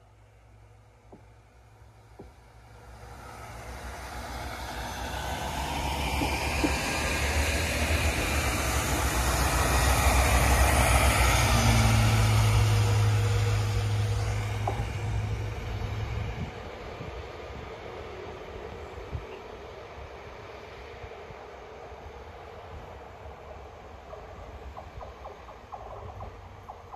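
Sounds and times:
train wheels rumbling on rail: 0.0 - 26.9
diesel engine drone: 0.6 - 20.1.

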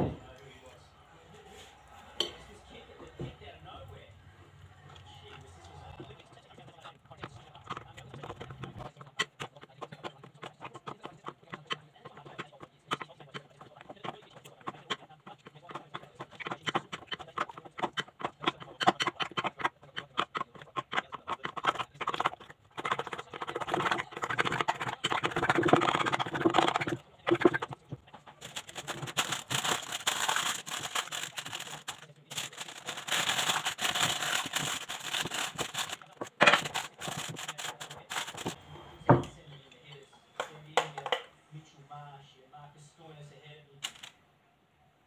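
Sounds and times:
spoon scraping glass bowl: 6.0 - 38.6.

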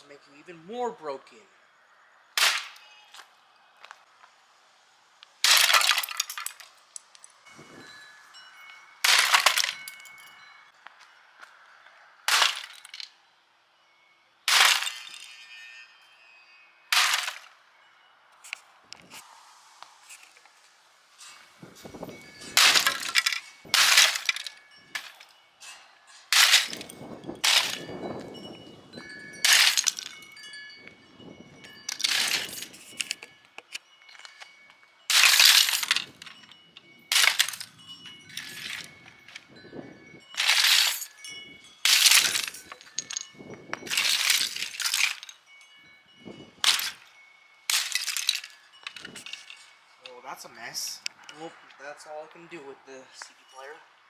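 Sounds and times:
plastic pieces clattering on bricks: 5.4 - 7.4, 9.0 - 10.0, 12.3 - 13.1, 14.5 - 15.4, 22.4 - 25.3, 26.3 - 27.9, 29.4 - 30.1, 31.9 - 34.4, 35.1 - 36.4, 37.1 - 37.7, 40.3 - 41.2, 41.8 - 45.4, 46.6 - 47.1, 47.7 - 49.7.

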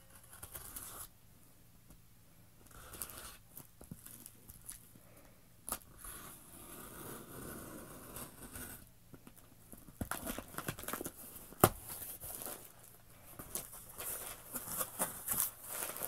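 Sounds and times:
crackly rustling: 9.2 - 16.0.

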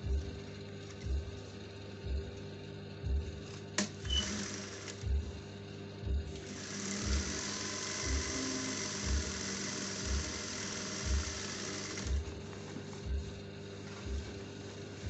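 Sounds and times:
thumping music beat: 0.0 - 4.2, 5.0 - 15.0
sewing machine stitching: 4.1 - 5.0, 6.4 - 12.3.

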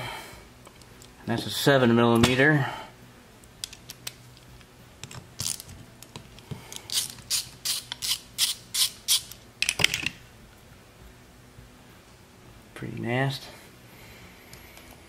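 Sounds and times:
socket ratchet clicking: 6.8 - 10.0.

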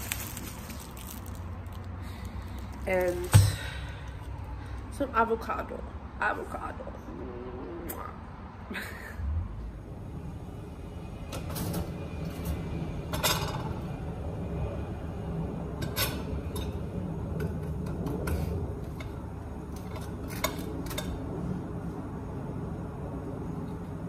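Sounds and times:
steady low hum: 0.0 - 24.0
utensils and dishes clattering: 13.1 - 13.8.

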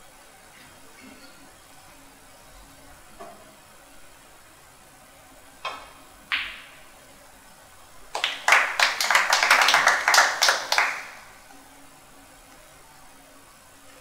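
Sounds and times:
cue striking ball: 5.6 - 6.8
snooker balls clicking: 5.6 - 6.8
audience clapping: 8.1 - 11.3.

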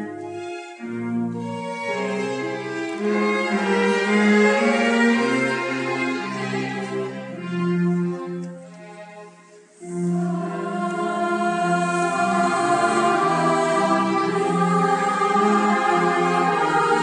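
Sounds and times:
choir-like voices: 9.7 - 17.0.

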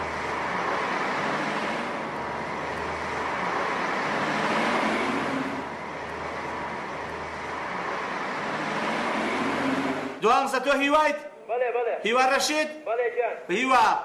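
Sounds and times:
cars passing on street: 0.0 - 11.0.

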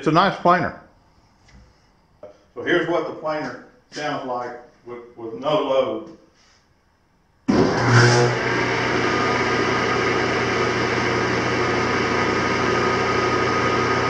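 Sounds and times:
planer running with no load: 7.5 - 14.0.

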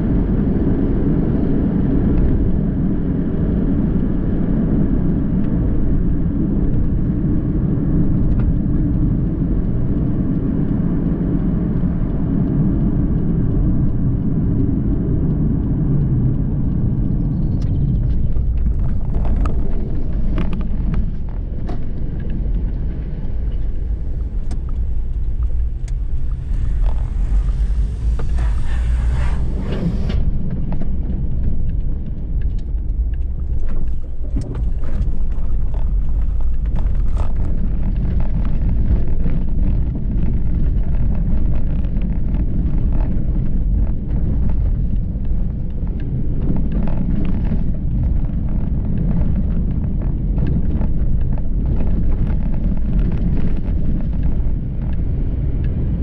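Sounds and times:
car engine and tyre rumble: 0.0 - 56.0
hiss: 26.2 - 30.2.

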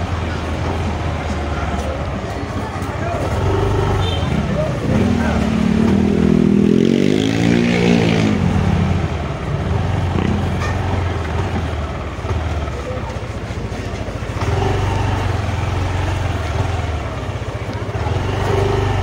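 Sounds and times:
scooter engine running: 8.4 - 19.0.

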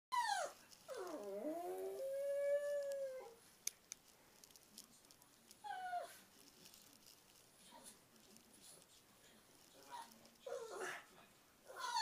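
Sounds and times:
dog howling: 0.1 - 3.4, 11.7 - 12.0.

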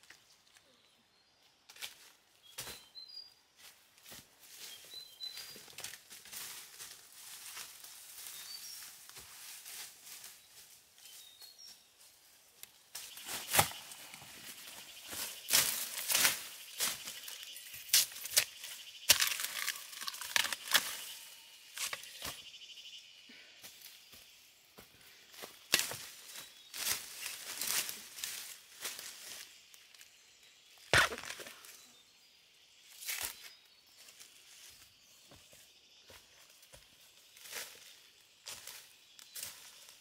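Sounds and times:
bird chirps: 4.6 - 5.8, 13.0 - 40.0
undergrowth rustling and snapping: 12.9 - 22.4, 25.7 - 29.2, 30.8 - 31.7.

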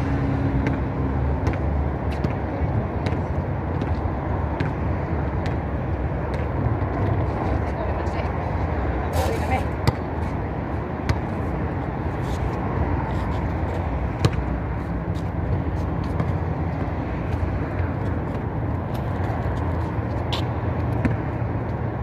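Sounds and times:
basketball bouncing on concrete: 0.5 - 7.3, 9.2 - 10.4, 11.0 - 11.4, 13.7 - 21.8.

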